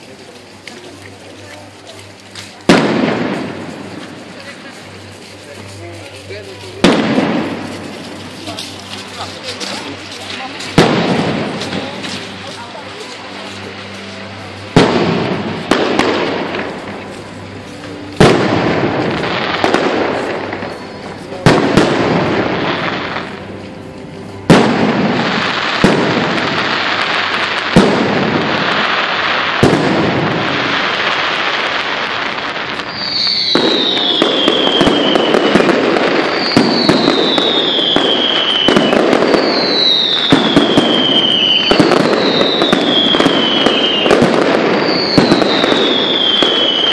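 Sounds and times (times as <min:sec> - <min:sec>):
fireworks crackling: 0:00.0 - 0:46.9
falling firework whistles: 0:32.8 - 0:46.9.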